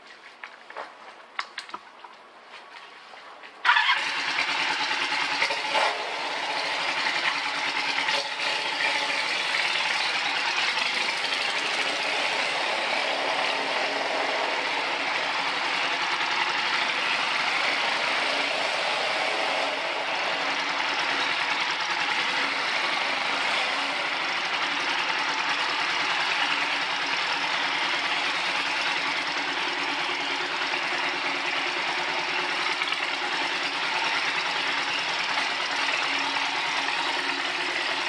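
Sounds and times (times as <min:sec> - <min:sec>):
motorcycle engine idling: 0:03.6 - 0:38.0.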